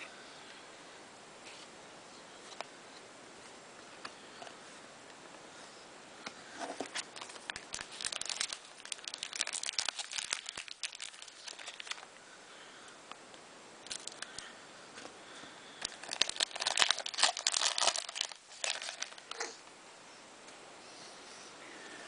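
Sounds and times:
wrapper crinkling and tearing: 6.8s - 12.1s, 13.8s - 14.4s, 15.8s - 19.5s.

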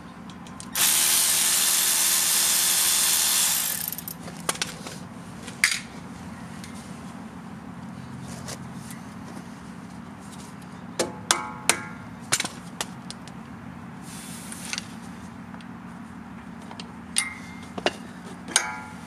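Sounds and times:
metal tools clinking: 3.6s - 4.3s.

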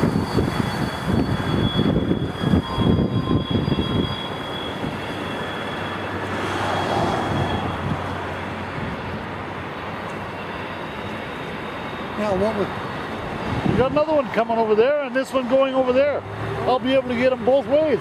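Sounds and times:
wind buffeting microphone: 0.0s - 5.3s, 7.0s - 9.5s, 12.6s - 14.4s
distant freight trains rumbling: 0.0s - 18.0s.

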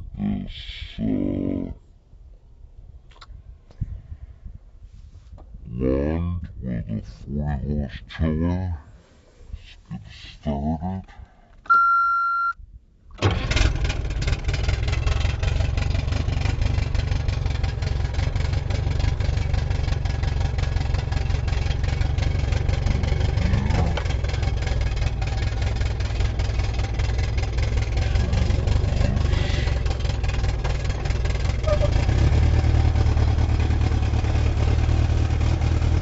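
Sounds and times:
short electronic beep: 11.7s - 12.6s
outboard motor starting and idling: 13.2s - 36.0s.

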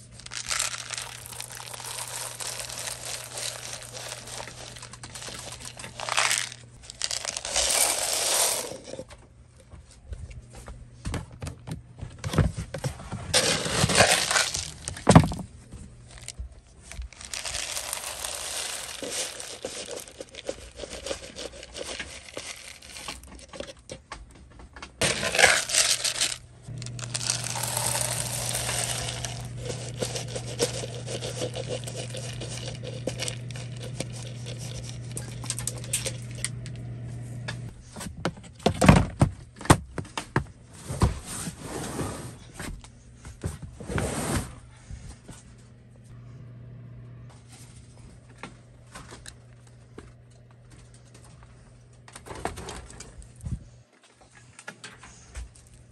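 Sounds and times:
pellets rattling into metal feeder: 0.1s - 9.0s, 13.4s - 15.4s, 16.1s - 16.3s, 16.9s - 23.7s, 25.0s - 36.5s.

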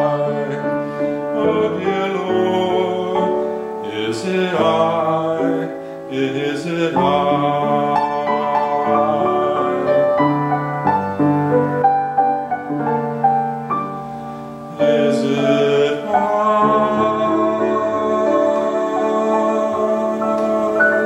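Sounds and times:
upright piano playing: 0.0s - 21.0s
man singing a held note: 14.7s - 21.0s.

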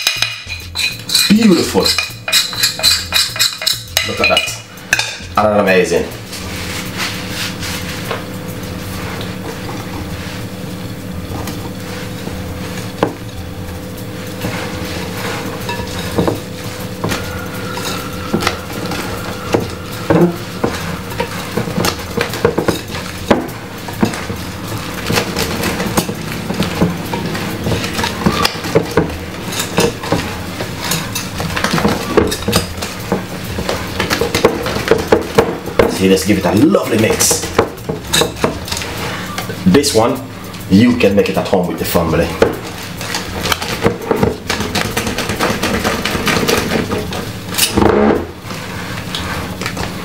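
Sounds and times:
whisk clinking against bowl: 0.0s - 5.2s.

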